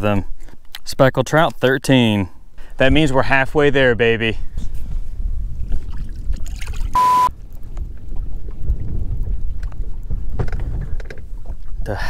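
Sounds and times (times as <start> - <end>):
low rumble of wind: 0.0 - 12.0
water around boat: 0.0 - 12.0
censor bleep: 7.0 - 7.3.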